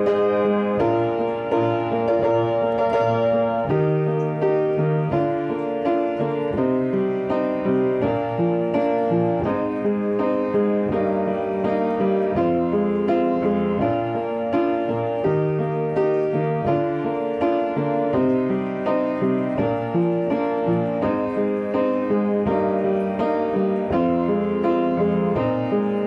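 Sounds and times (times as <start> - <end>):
solo piano ballad: 0.0 - 26.0.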